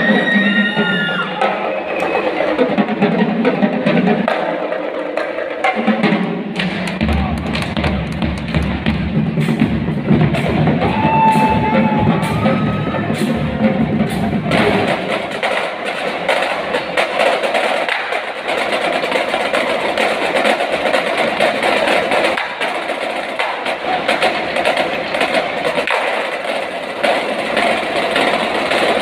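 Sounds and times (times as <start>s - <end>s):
marching drumline playing: 0.0s - 29.0s
lower band sound: 6.0s - 16.0s.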